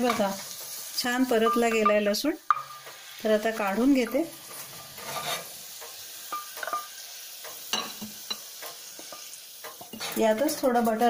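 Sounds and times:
butter sizzling in a saucepan: 0.0s - 11.0s
wooden spatula scraping a pan: 4.4s - 5.6s, 9.0s - 11.0s.

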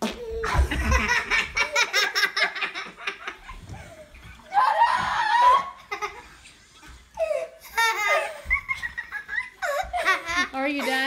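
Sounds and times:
people laughing: 0.4s - 4.0s, 7.6s - 11.0s.

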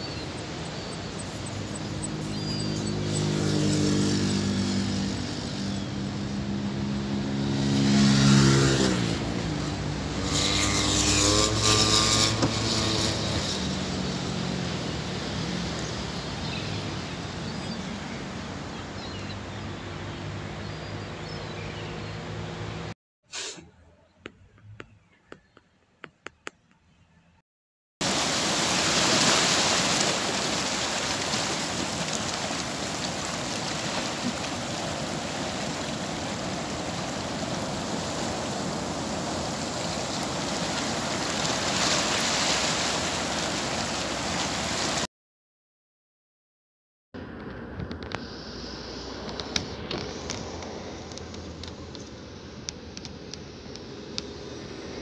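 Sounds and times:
waves washing over rocks: 28.0s - 45.1s.

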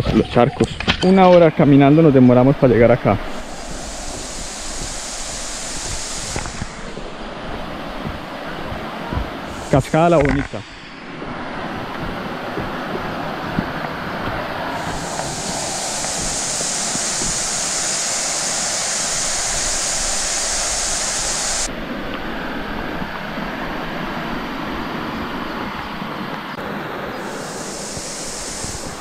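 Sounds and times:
high steady hiss: 1.0s - 29.0s
waterfall rushing: 1.7s - 21.7s, 26.6s - 29.0s.

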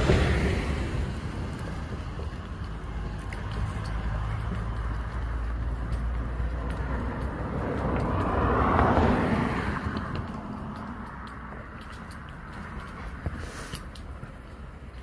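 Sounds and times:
minivan driving past: 0.0s - 11.2s.

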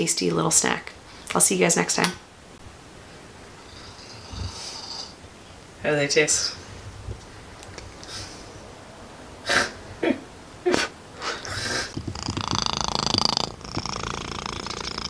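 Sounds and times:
cat purring: 10.7s - 15.0s.

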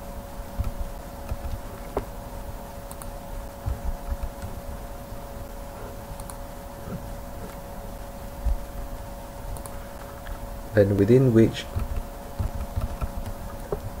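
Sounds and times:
steady many-toned hum: 0.0s - 14.0s
soft low thumps: 0.5s - 2.6s, 3.5s - 4.7s, 8.4s - 8.9s, 11.7s - 14.0s
keyboard and mouse clicks: 0.6s - 2.1s, 2.9s - 4.6s, 6.2s - 6.4s, 9.5s - 9.8s, 11.7s - 14.0s.

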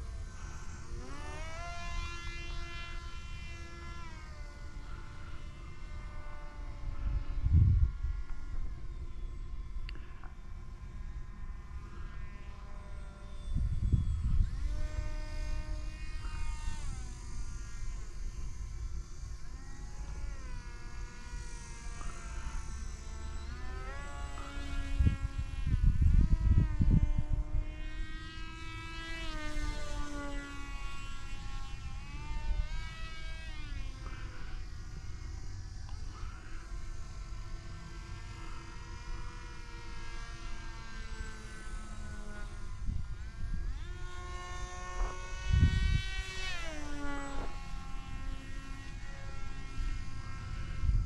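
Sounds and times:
model plane motor whining: 0.0s - 51.0s
wind buffeting microphone: 7.0s - 8.3s, 24.7s - 28.1s, 42.6s - 46.4s.

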